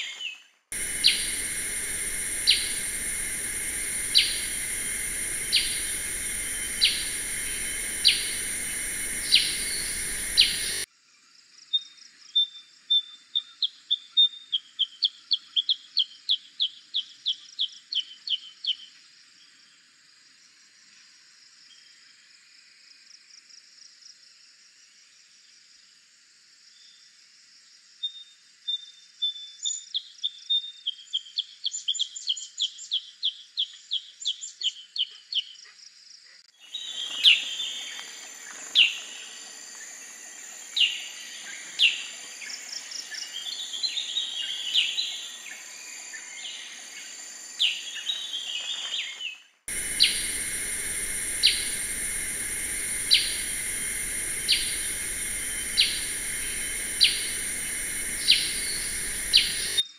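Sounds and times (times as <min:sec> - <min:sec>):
high insect drone: 0:00.7 - 0:10.9, 0:36.6 - 0:59.8
bird chirping and calling: 0:00.8 - 0:10.8.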